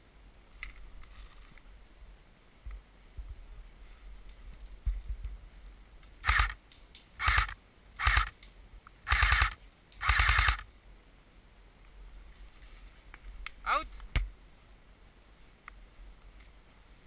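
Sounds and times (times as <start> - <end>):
airsoft gun firing bursts: 6.2 - 6.6, 7.2 - 8.3, 9.0 - 10.7.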